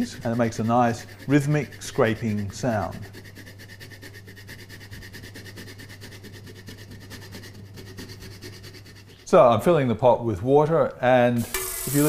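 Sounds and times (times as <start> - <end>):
cheese scraping on grater: 0.0 - 9.4.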